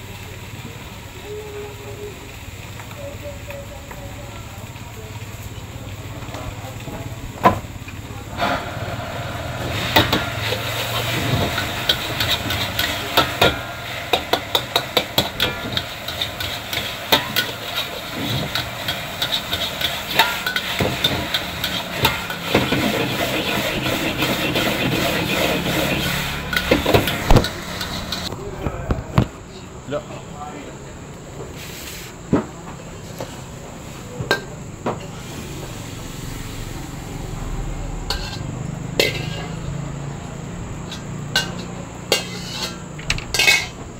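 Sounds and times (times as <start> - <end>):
food sizzling in a wok: 0.0 - 28.4, 29.7 - 43.9
low hum: 7.8 - 16.8
metal spatula clanking on wok: 8.4 - 28.3, 38.0 - 39.8, 40.8 - 43.8.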